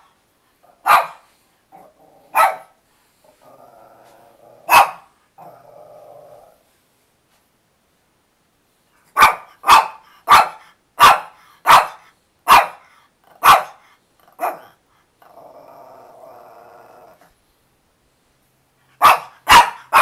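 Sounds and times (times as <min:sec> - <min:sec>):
small dog barking: 0:00.8 - 0:02.8, 0:04.6 - 0:05.1, 0:09.1 - 0:14.8, 0:19.0 - 0:20.0
dog grumbling: 0:03.3 - 0:04.7, 0:05.4 - 0:06.6, 0:15.2 - 0:17.3.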